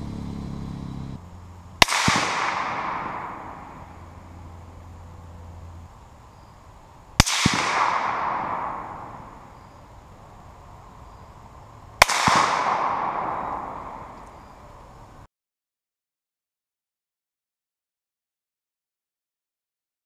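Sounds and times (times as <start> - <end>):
gunshot echo rolling: 1.8 - 4.7, 7.2 - 9.8, 12.0 - 14.6
rifle shot crack: 1.8 - 4.7, 7.2 - 9.8, 12.0 - 14.6.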